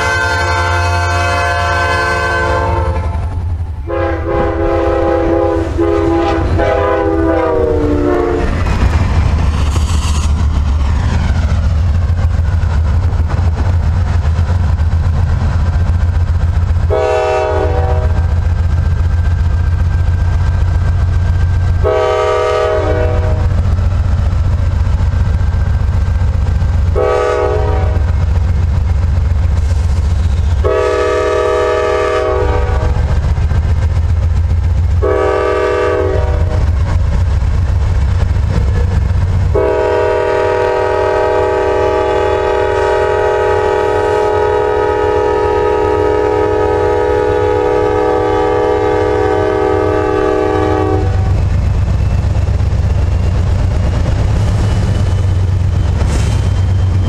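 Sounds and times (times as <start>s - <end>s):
locomotive air horn blasts: 0.0s - 3.2s, 3.8s - 8.5s, 16.9s - 18.4s, 21.8s - 23.5s, 27.0s - 28.2s, 30.6s - 33.1s, 35.0s - 36.7s, 39.5s - 51.4s
diesel locomotives rumbling: 0.0s - 57.0s.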